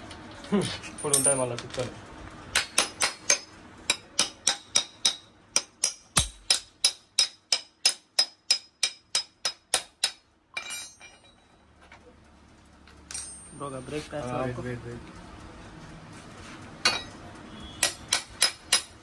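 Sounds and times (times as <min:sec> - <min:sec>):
light metal rattle: 0:10.6 - 0:11.8.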